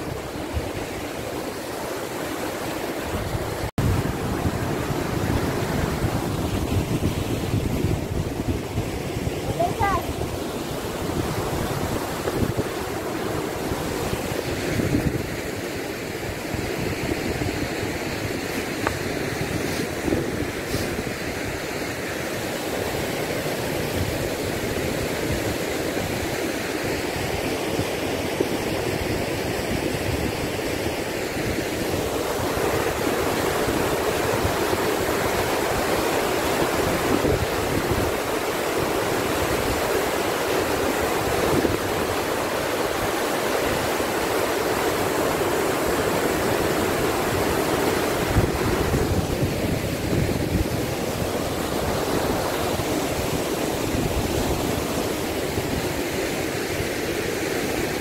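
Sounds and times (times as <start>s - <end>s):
stream rushing over rocks: 0.0s - 58.0s
wind buffeting microphone: 2.9s - 21.7s, 46.0s - 56.0s.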